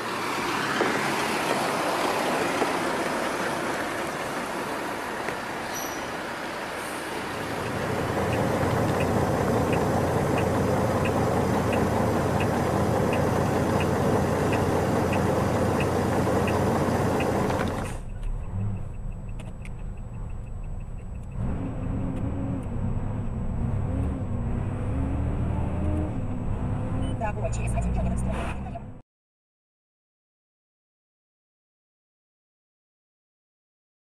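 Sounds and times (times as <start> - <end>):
low rumble of vehicle driving: 0.0 - 29.0
vehicle engine and road noise: 0.0 - 29.0
light ticking: 7.6 - 21.4.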